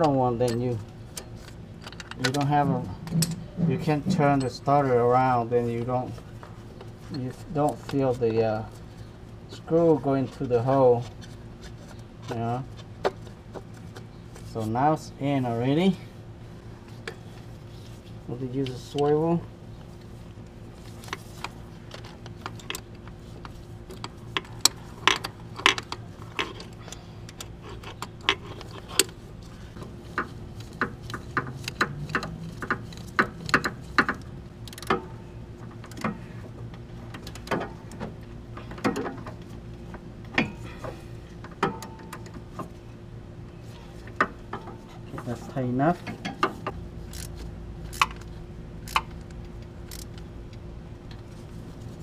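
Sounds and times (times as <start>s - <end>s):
metal tool tapping engine: 1.9s - 4.6s, 30.2s - 35.2s
hand ratchet clicking: 30.2s - 35.0s, 48.8s - 49.1s.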